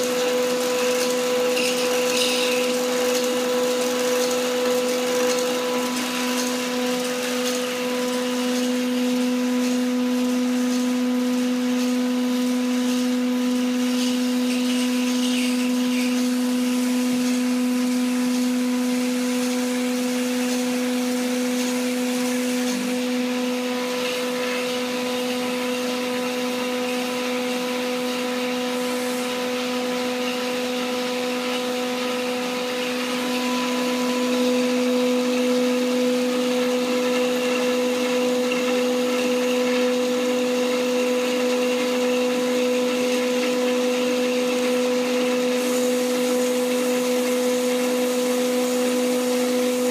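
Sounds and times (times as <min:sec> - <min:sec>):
electric motor humming: 0:00.0 - 0:49.9.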